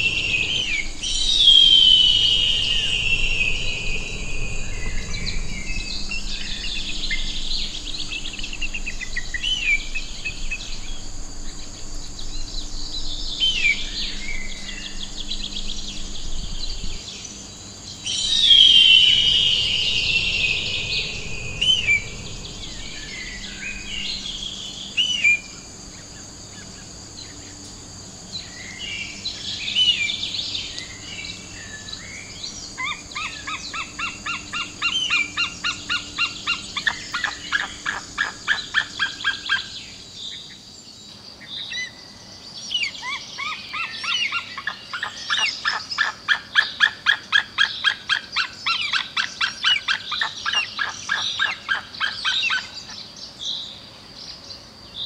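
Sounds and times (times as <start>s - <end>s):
eagle chirps and whistles: 0.0s - 5.4s, 18.0s - 25.4s
steady high tone: 0.0s - 7.0s, 18.0s - 25.6s.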